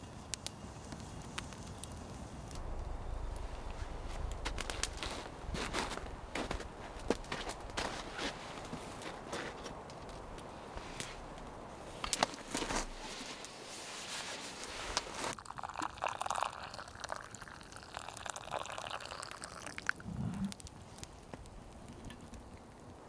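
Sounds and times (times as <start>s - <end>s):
sleeping bag rustling: 3.7s - 15.4s
fabric clicks and crackles: 4.1s - 15.4s.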